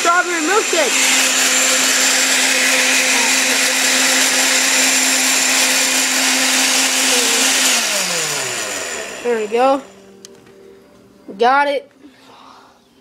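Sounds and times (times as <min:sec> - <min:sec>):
blender motor spinning down: 0:00.0 - 0:10.1
blender running: 0:00.0 - 0:10.2.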